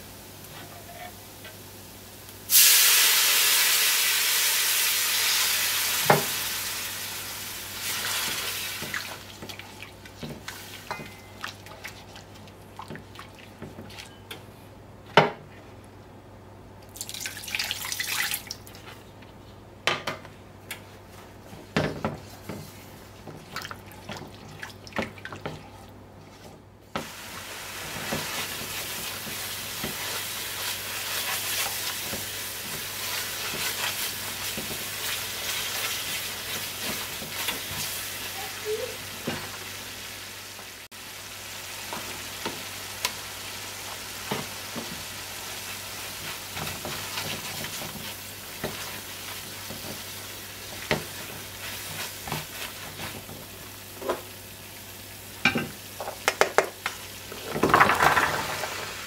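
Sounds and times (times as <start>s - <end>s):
curry paste sizzling: 0.0s - 14.2s, 21.1s - 59.0s
water hissing in hot pot: 2.5s - 9.3s.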